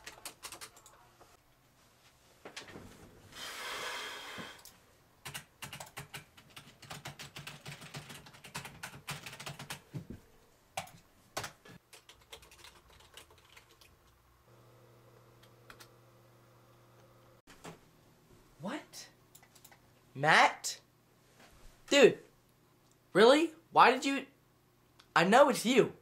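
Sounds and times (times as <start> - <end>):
keyboard typing: 0.0 - 1.0, 4.6 - 9.8, 10.8 - 13.9, 19.3 - 19.8.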